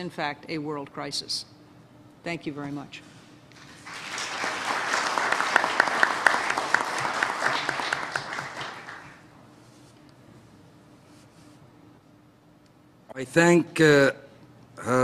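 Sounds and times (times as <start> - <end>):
audience applauding: 3.6 - 9.2
close hands clapping: 3.6 - 9.3.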